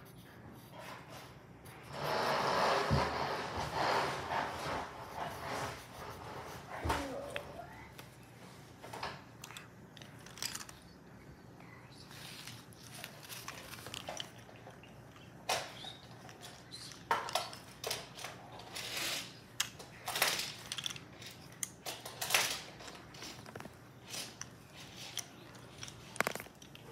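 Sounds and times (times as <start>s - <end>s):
pencil scratching on paper: 0.0s - 7.5s.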